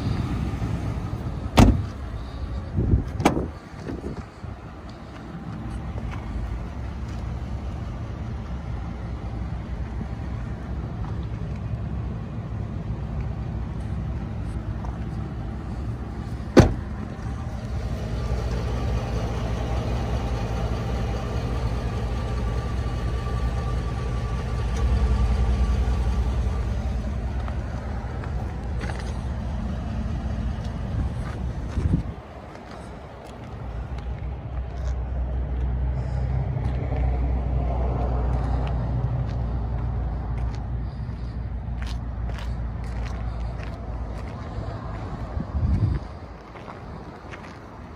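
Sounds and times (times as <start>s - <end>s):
truck engine idling: 0.0s - 47.9s
car door slamming: 1.5s - 2.0s, 3.1s - 3.5s, 16.5s - 17.1s.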